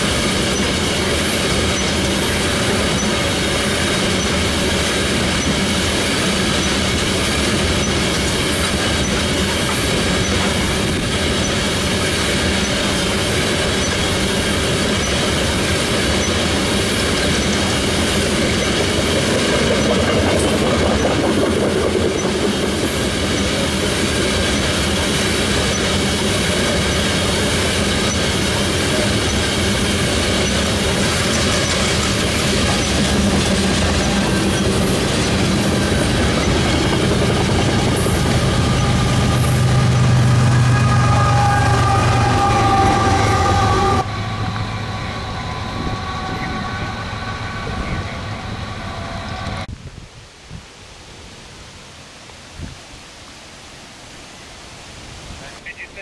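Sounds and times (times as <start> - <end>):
high wheel squeal: 0.0 - 21.3, 22.0 - 49.7
train wheels rumbling on rail: 0.0 - 49.8.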